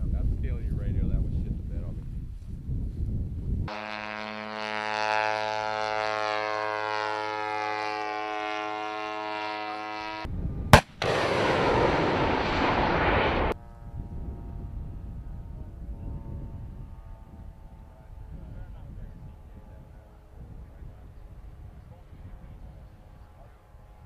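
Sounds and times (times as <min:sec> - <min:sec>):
propeller drone engine overhead: 0:03.7 - 0:24.0
missile launch bang: 0:10.8 - 0:13.6
rushing missile motor: 0:10.8 - 0:13.6.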